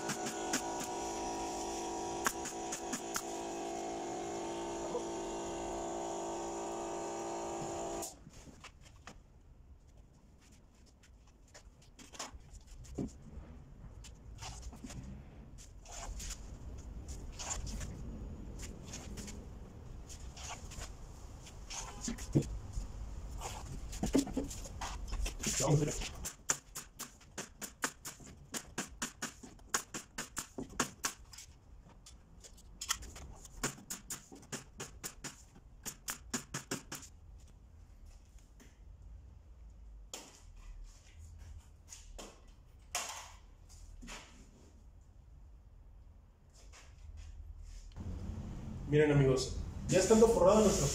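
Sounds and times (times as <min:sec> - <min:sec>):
pneumatic nailer firing: 0:00.0 - 0:08.2.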